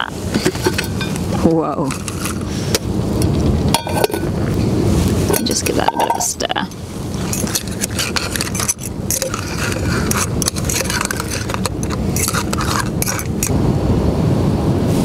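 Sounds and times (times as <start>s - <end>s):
wind on microphone: 0.0s - 15.0s
metal utensil clinking in a pot: 3.7s - 4.3s, 5.3s - 6.4s, 7.2s - 13.5s.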